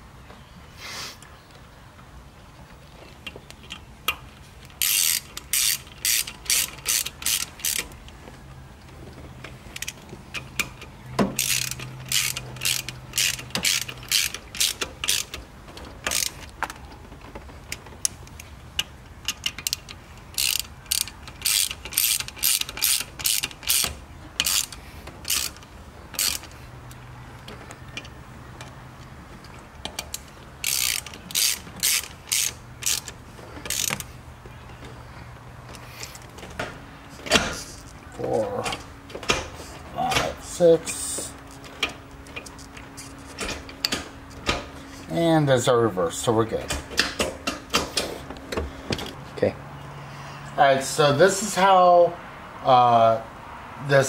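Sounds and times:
ratchet wrench clicking: 4.8 - 8.0, 9.8 - 15.4, 16.0 - 16.6, 18.0 - 27.0, 29.8 - 34.1.

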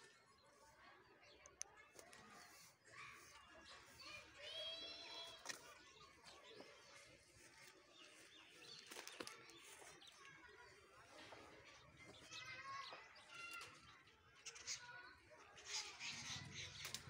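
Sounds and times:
faint rustling of vine leaves: 1.7 - 13.8.

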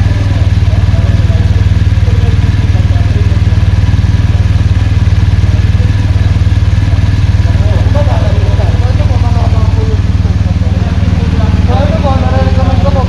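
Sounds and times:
faint voices: 0.0 - 13.0
motorcycle engine idling: 0.0 - 13.0.

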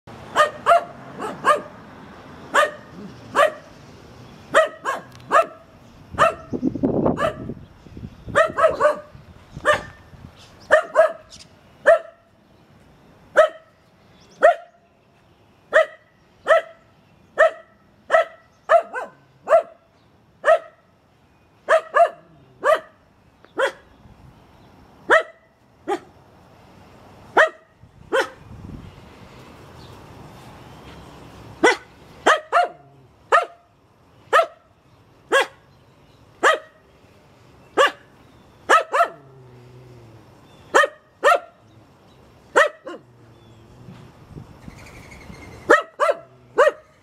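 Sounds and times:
dog barking sharply: 0.3 - 1.7, 2.5 - 3.7, 4.6 - 5.6, 6.2 - 6.5, 8.4 - 10.0, 10.7 - 11.3, 17.4 - 19.8, 27.4 - 28.4, 31.6 - 33.6, 34.3 - 34.6, 35.3 - 35.6, 38.7 - 39.2, 40.8 - 41.6, 42.6 - 43.0, 45.7 - 46.8.

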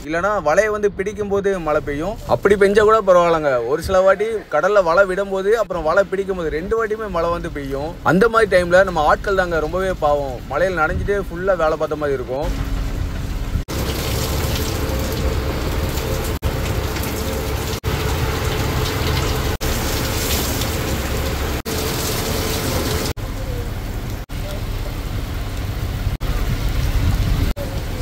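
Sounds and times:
heavy rain pouring: 1.5 - 28.0.

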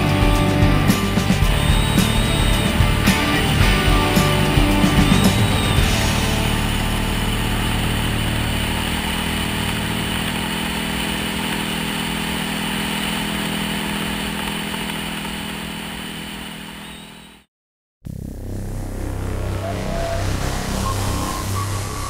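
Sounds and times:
dirt bike engine running: 0.0 - 17.5.

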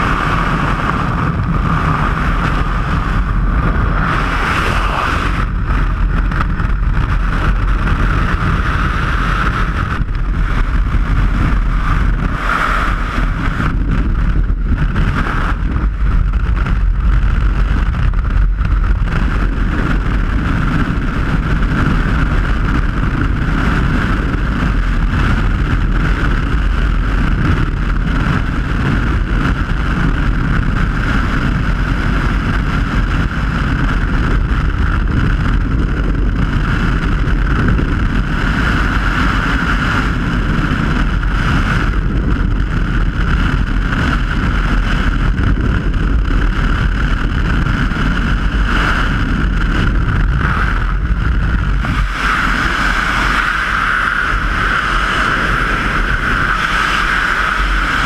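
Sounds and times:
whistling wind note: 0.0 - 16.5, 47.7 - 58.0
wind roaring over microphone: 0.0 - 58.0.

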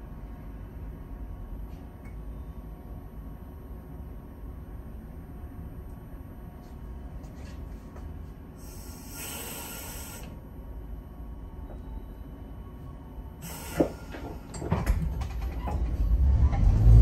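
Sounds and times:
low rumble inside tram: 0.0 - 17.0
air hissing: 8.6 - 10.4, 13.4 - 14.4.

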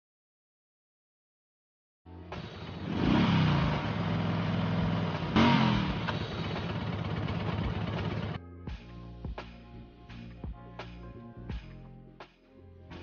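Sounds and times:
music: 2.1 - 2.9, 8.4 - 13.0
motorcycle engine revving: 2.3 - 8.4.

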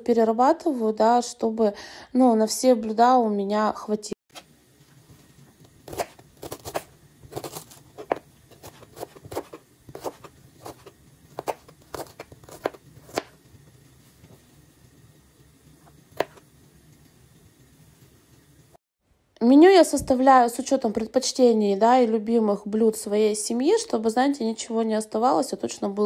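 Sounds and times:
knife chopping onion on board: 5.8 - 13.5, 15.8 - 16.5.

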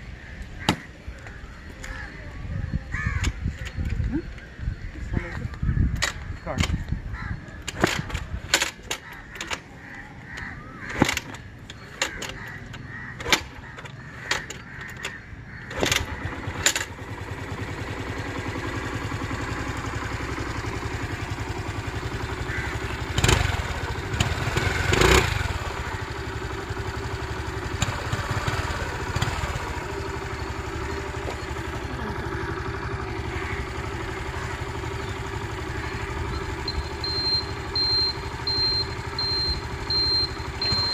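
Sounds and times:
scooter engine running: 5.5 - 40.9
sharp clicks and knocks: 6.0 - 6.9, 7.6 - 9.7, 10.9 - 16.9.

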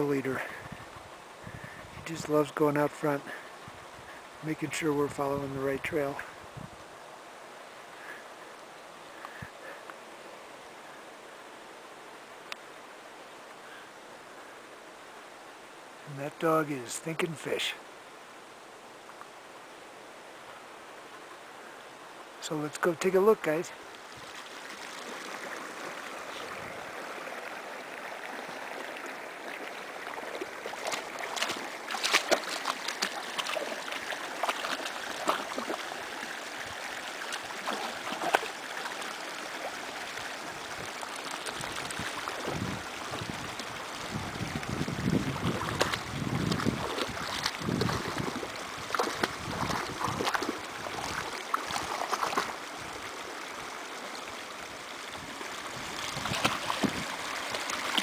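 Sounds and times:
dog splashing through water: 30.6 - 35.9, 37.3 - 38.6, 45.4 - 52.6, 56.1 - 58.0.

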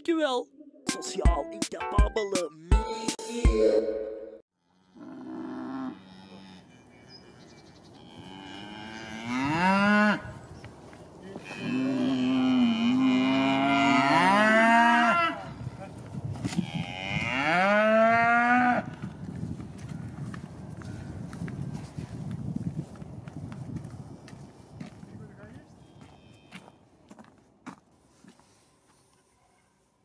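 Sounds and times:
cattle mooing: 4.6 - 10.3, 11.3 - 15.6, 16.5 - 18.9.

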